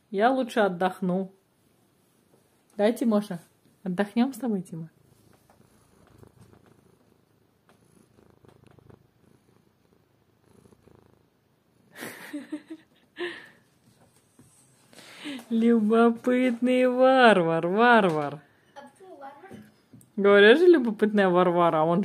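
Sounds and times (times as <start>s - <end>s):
cat purring: 4.6s - 12.9s.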